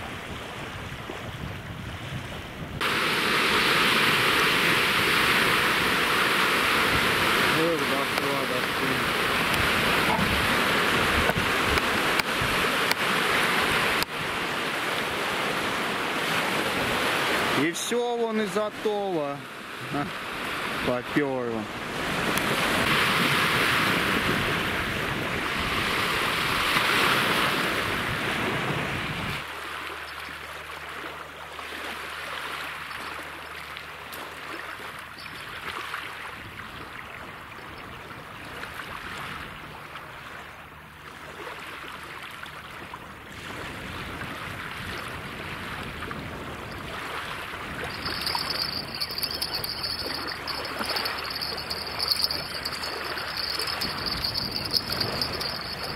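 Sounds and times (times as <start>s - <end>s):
insect high trill: 35.1s - 35.7s, 47.8s - 55.9s
steady rushing outdoor noise: 47.9s - 55.9s.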